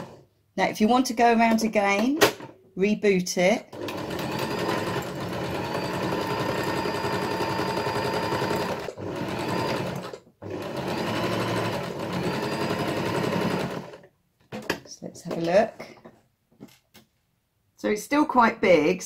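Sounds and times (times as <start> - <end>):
sewing machine stitching: 0.0 - 0.2, 3.7 - 14.7.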